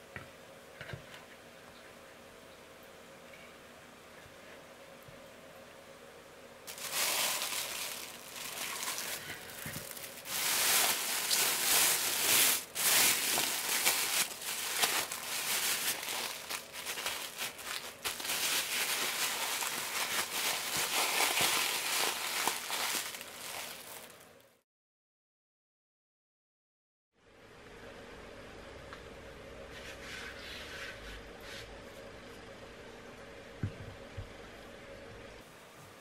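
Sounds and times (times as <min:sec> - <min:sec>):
plastic bag crinkling: 0:06.7 - 0:24.3.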